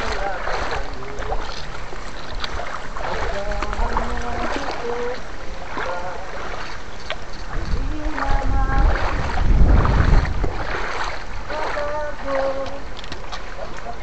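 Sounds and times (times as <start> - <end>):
water splashing around wading legs: 0.0 - 14.0
low rumble: 7.3 - 12.1.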